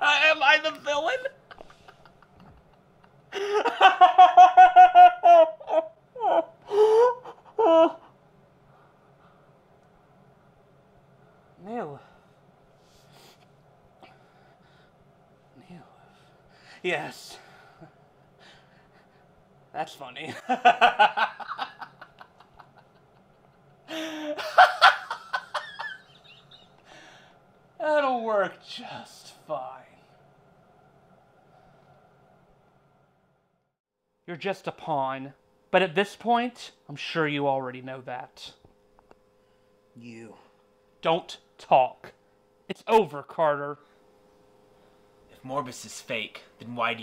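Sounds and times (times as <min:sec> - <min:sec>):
man laughing hard: 0:01.3 - 0:08.1, 0:20.3 - 0:26.8
breaths: 0:08.6 - 0:09.5, 0:11.2 - 0:15.1, 0:16.0 - 0:19.3, 0:26.8 - 0:27.5, 0:31.4 - 0:32.2, 0:39.3 - 0:39.8, 0:43.8 - 0:45.2.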